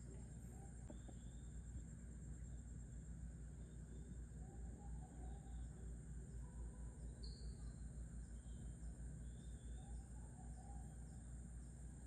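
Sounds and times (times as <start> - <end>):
bird chirp: 0.0 - 2.7, 3.5 - 11.7
high insect drone: 0.0 - 12.0
faint wavering calls: 3.4 - 12.0.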